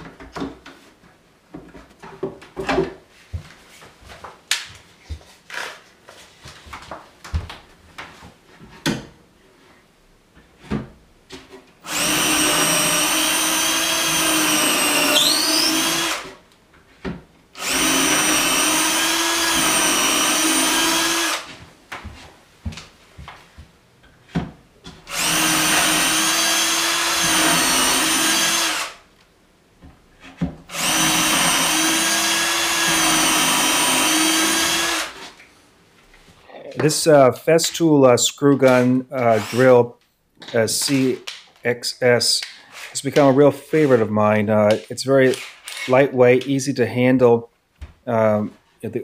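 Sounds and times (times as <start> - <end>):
drill drilling into plywood: 11.9 - 16.3, 17.6 - 21.5, 25.1 - 29.0, 30.7 - 35.3.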